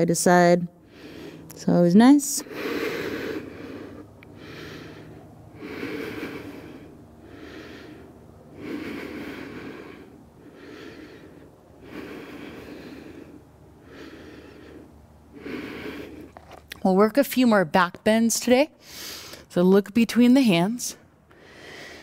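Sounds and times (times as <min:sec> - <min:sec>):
woman breathing slowly: 0:00.7 - 0:01.6, 0:02.3 - 0:16.6, 0:18.8 - 0:19.5, 0:21.1 - 0:22.0.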